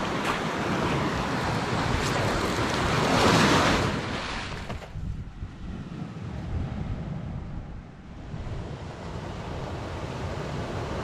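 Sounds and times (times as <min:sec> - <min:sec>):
waves breaking over rocks: 0:00.0 - 0:06.4
wind buffeting microphone: 0:00.0 - 0:10.1.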